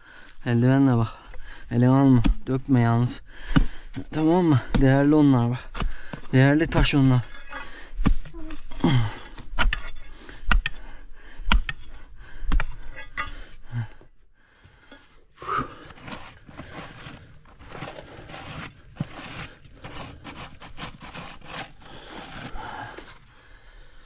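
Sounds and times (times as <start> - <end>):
hard objects scraping and rubbing: 15.7 - 23.2.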